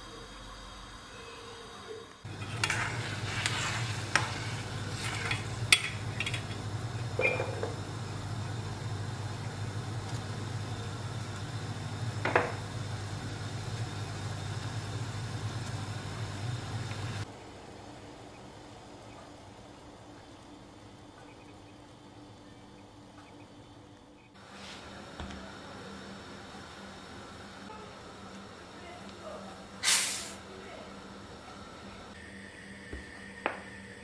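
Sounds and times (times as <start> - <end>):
syrup boiling in a pot: 0.1 - 17.3.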